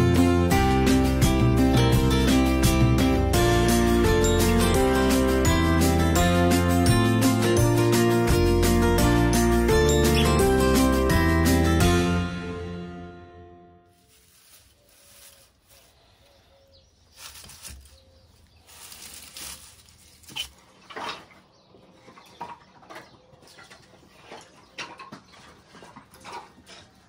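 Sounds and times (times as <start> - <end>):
dry kindling rustling and crackling: 13.9 - 16.2, 17.0 - 21.0.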